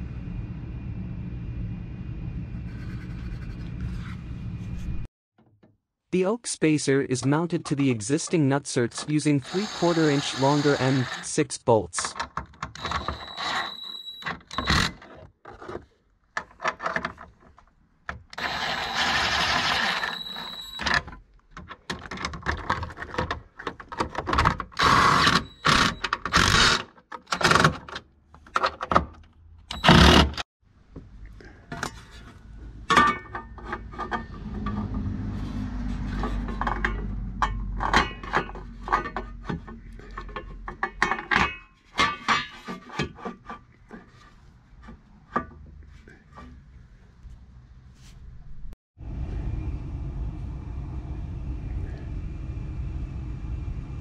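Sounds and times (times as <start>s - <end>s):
low steady rumble: 0.0s - 5.1s, 48.3s - 54.0s
cordless drill driving bolts: 9.5s - 11.3s, 12.8s - 15.0s, 18.4s - 20.8s, 24.8s - 26.8s, 29.7s - 30.4s
handling clicks and clatter: 20.2s - 26.4s.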